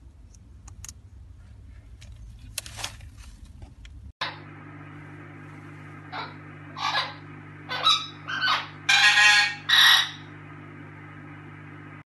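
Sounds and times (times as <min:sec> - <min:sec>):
parrot squawking: 0:06.1 - 0:10.3.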